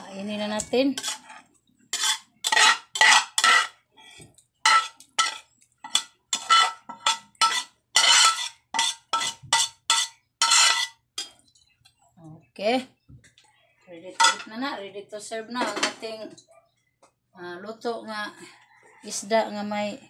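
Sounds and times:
utensil scraping metal frying pan: 0:00.0 - 0:03.8, 0:04.6 - 0:11.4, 0:14.2 - 0:14.5.

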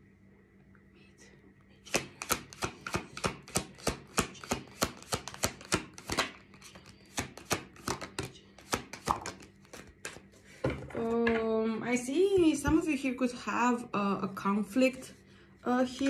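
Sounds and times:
cards being shuffled: 0:01.8 - 0:10.4.

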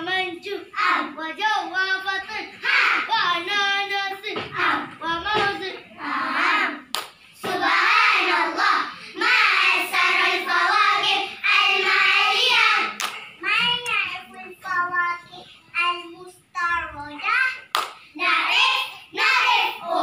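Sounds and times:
children chanting in unison: 0:00.7 - 0:13.0, 0:18.1 - 0:20.0
sharp hand claps: 0:06.9 - 0:07.2, 0:12.9 - 0:14.0, 0:17.7 - 0:18.0.

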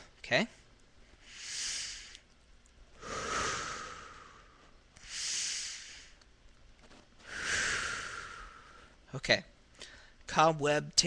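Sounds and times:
man breathing deeply: 0:01.2 - 0:02.2, 0:03.0 - 0:06.2, 0:07.2 - 0:09.0.

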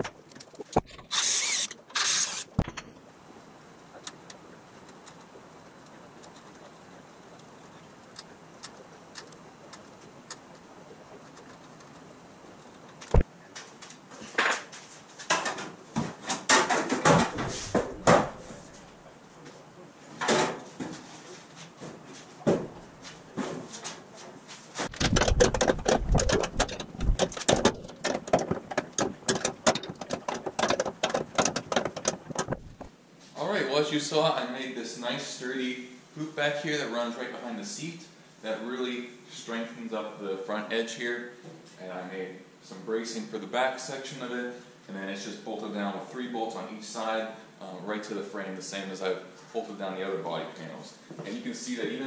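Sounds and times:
low shop hum: 0:00.0 - 0:30.6
ratchet wrench clicking: 0:01.1 - 0:02.6.

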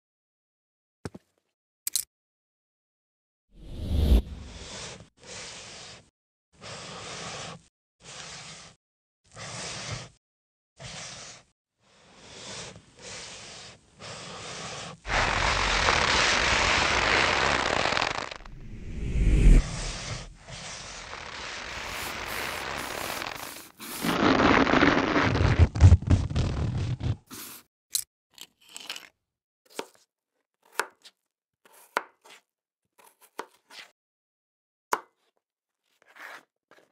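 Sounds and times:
knife crunching through radish: 0:20.9 - 0:27.6, 0:28.4 - 0:29.1
knife slicing radish: 0:21.7 - 0:24.2, 0:29.7 - 0:30.0, 0:30.6 - 0:33.9, 0:35.9 - 0:36.9.

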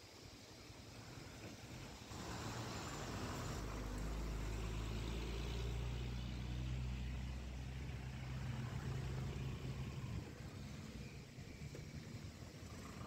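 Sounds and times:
road noise: 0:00.1 - 0:13.0
vehicle engine humming: 0:00.8 - 0:13.0.

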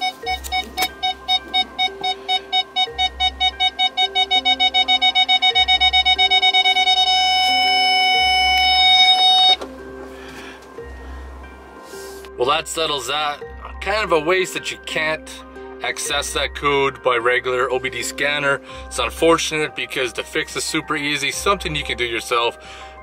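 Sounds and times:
parking sensor warning beeps: 0:00.0 - 0:09.7
background music with steady beat: 0:00.0 - 0:23.0.

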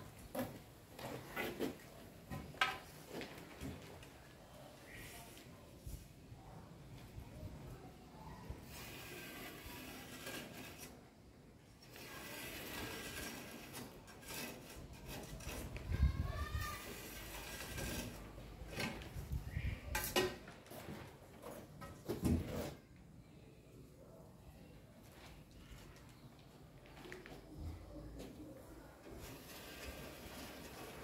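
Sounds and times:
scraping and rubbing: 0:08.5 - 0:11.2, 0:11.8 - 0:20.2, 0:29.1 - 0:31.0.

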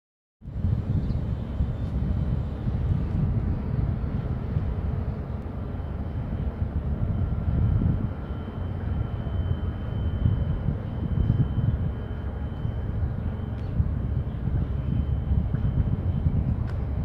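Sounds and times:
wind buffeting the microphone: 0:00.4 - 0:17.0
faint steady high tone: 0:05.8 - 0:16.3.

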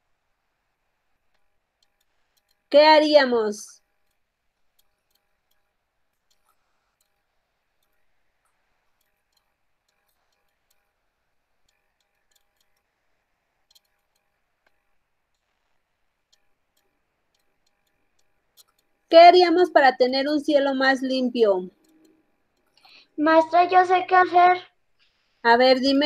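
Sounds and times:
faint ticks: 0:00.7 - 0:02.8, 0:03.7 - 0:19.1, 0:21.7 - 0:23.2.

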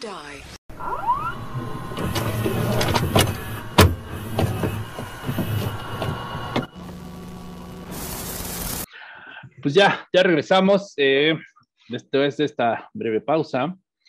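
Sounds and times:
rising swoop: 0:00.7 - 0:06.8.

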